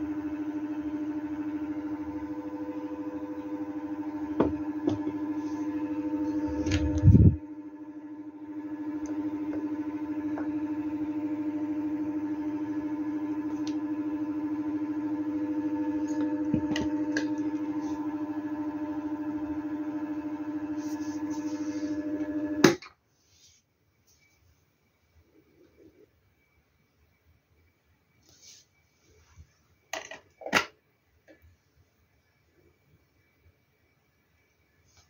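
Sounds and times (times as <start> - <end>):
fan electrical hum: 2.2 - 19.6.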